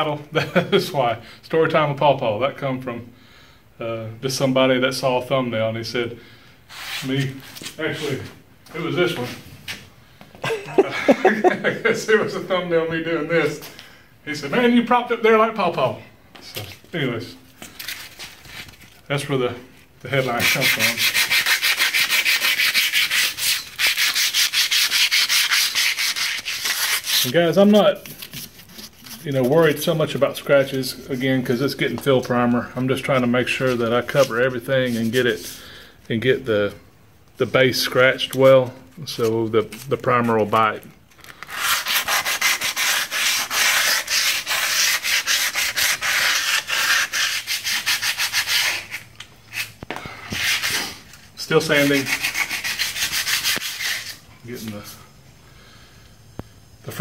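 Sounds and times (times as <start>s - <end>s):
hand sanding steel: 20.1s - 29.9s, 41.5s - 49.8s, 50.4s - 54.9s.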